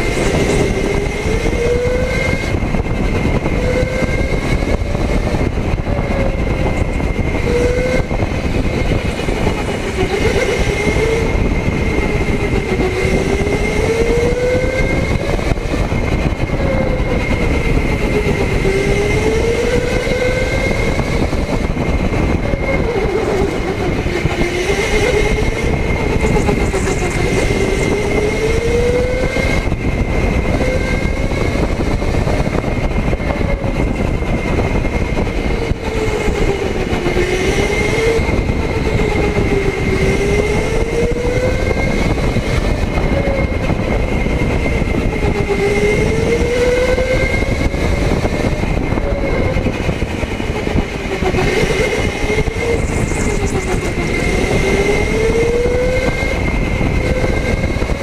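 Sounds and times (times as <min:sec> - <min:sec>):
constant high tone: 0:00.0 - 0:29.7, 0:45.0 - 0:57.9
electric motor whine: 0:00.0 - 0:58.0
tyres and chassis rumbling: 0:00.0 - 0:58.0.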